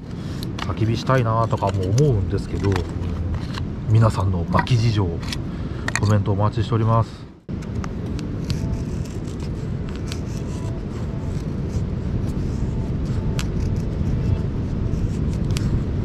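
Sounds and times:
steady low rumble: 0:00.0 - 0:16.0
knife scraping firewood: 0:08.4 - 0:15.6.

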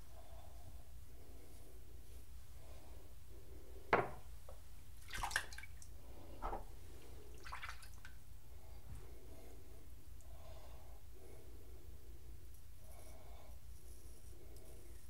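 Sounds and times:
water splashing at a sink: 0:05.0 - 0:08.2.

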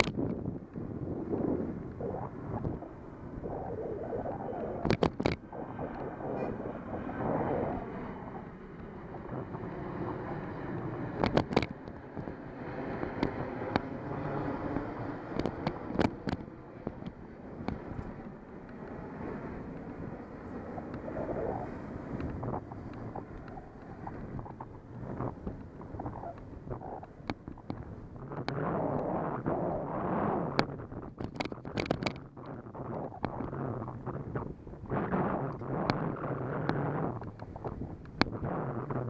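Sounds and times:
sharp clicks and knocks: 0:00.0 - 0:00.8, 0:04.8 - 0:06.1, 0:11.1 - 0:12.3, 0:15.3 - 0:19.0, 0:22.2 - 0:28.6, 0:30.5 - 0:33.6, 0:36.6 - 0:38.5
wind rushing over microphone: 0:00.0 - 0:39.0.

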